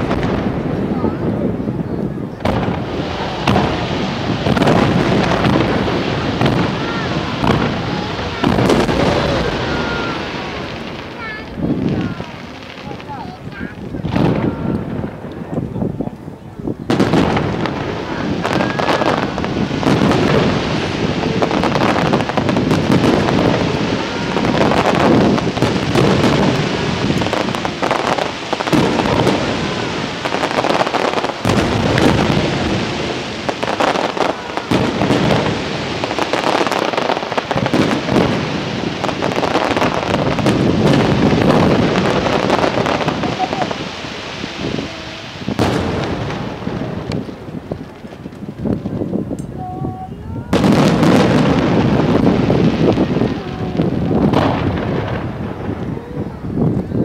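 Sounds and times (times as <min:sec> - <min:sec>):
firework shells bursting: 0:16.9 - 0:49.6.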